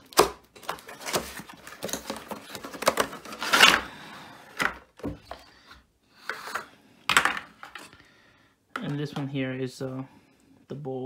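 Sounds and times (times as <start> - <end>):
plastic packaging crinkling: 0.0 - 3.9.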